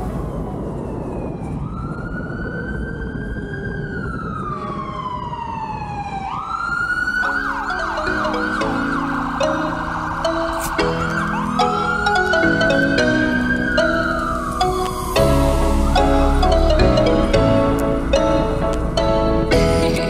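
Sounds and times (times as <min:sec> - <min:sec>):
siren wailing and yelping: 0:00.0 - 0:17.4
music with mallet tones: 0:07.4 - 0:20.0.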